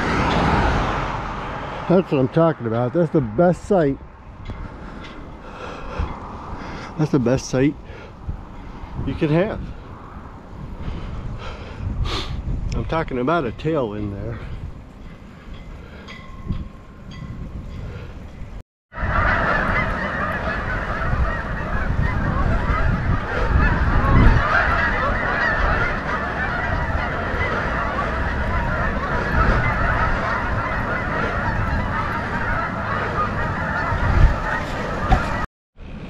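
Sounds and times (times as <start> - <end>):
flock of birds calling: 0.0 - 11.7, 19.0 - 35.5.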